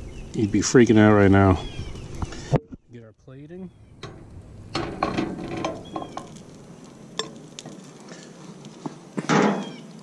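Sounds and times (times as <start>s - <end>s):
loud clatter: 4.0s - 6.3s.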